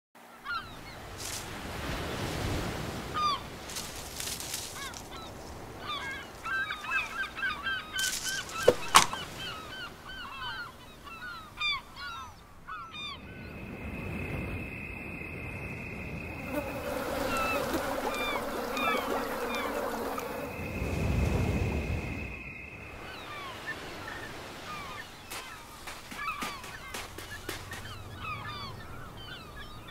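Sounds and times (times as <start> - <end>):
surf washing: 0.6 - 29.9
high insect drone: 13.2 - 24.0.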